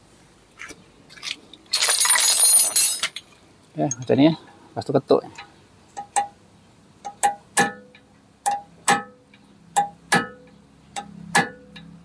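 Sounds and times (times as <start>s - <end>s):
hammer striking metal: 9.8s - 11.6s.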